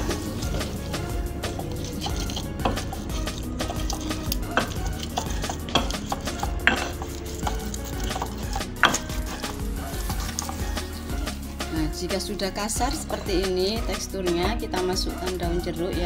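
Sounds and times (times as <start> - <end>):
pestle knocks: 0.0 - 10.9
pestle grinding in mortar: 0.0 - 15.8.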